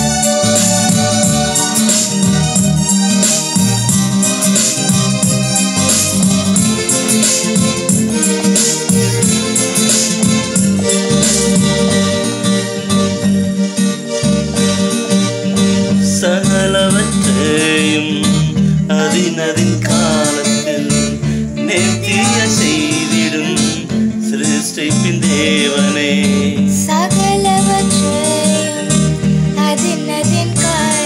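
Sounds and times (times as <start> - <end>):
electronic keyboard with rhythm: 0.0 - 31.0
voices singing: 16.0 - 28.8.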